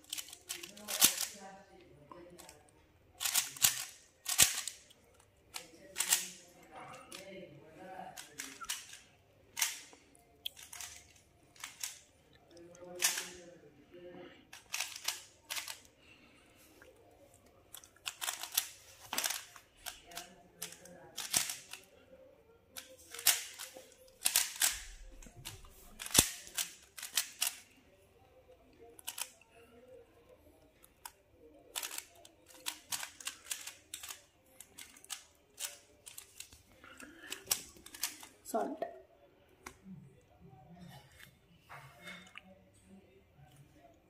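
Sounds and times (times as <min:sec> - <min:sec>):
puzzle cube clicking: 0:03.2 - 0:04.9, 0:13.0 - 0:13.3, 0:14.6 - 0:15.8, 0:17.8 - 0:21.9, 0:22.8 - 0:27.6, 0:31.1 - 0:36.6.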